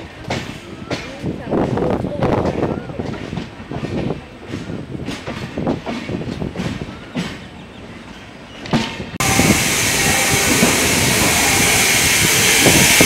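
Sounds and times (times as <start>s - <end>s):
train wheels knocking on rail joints: 0.2s - 7.5s, 8.6s - 13.0s
loud rushing hiss: 9.2s - 13.0s.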